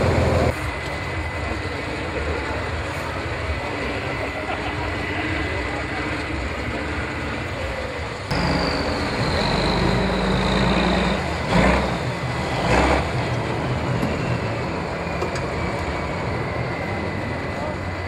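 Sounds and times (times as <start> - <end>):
heavy diesel truck engine: 0.0 - 18.0.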